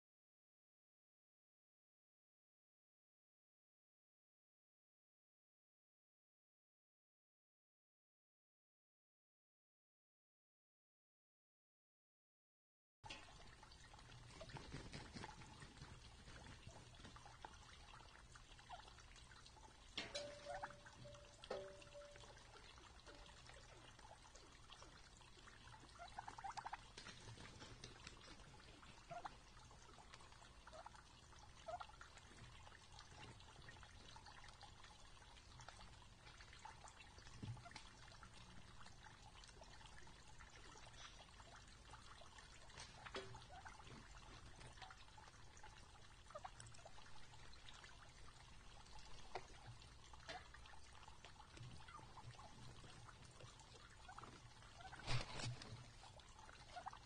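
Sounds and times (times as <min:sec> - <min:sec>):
soft turkey calls: 0:13.1 - 0:57.0
turkeys pecking and scratching: 0:13.1 - 0:57.0.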